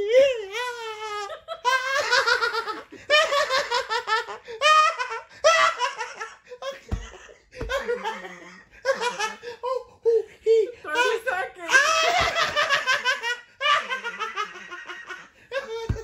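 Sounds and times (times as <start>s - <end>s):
dull thumps: 6.7s - 8.1s, 15.5s - 16.0s
high-pitched laughter: 11.7s - 16.0s.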